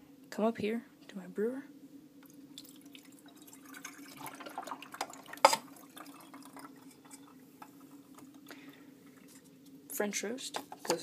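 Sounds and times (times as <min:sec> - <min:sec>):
steady low hum: 0:00.0 - 0:10.9
water pouring into reservoir: 0:02.2 - 0:09.4.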